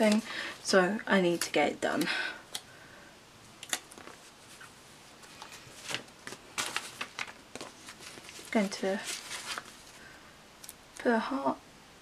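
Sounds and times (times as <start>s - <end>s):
paper sheets rustling: 4.0s - 10.0s.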